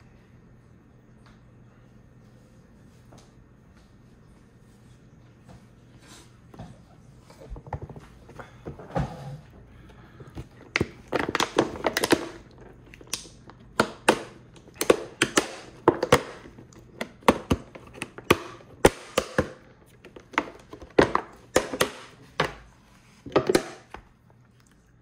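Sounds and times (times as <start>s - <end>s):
chewing and crunching: 9.7s - 18.8s, 24.1s - 25.0s.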